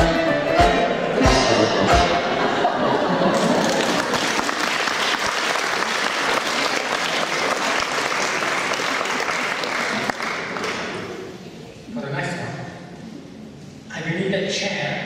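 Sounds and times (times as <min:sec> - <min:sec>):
audience applauding: 0:02.6 - 0:11.2.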